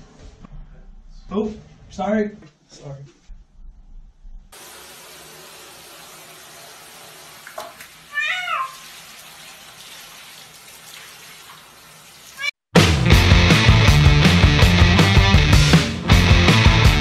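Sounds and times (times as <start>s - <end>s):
shower spraying into water: 4.6s - 12.6s
cat meowing: 8.1s - 8.9s.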